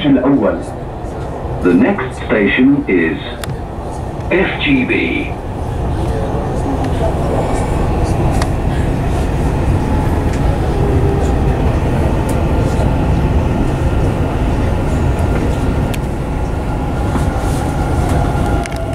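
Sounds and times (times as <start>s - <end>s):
train running noise: 0.0s - 18.9s.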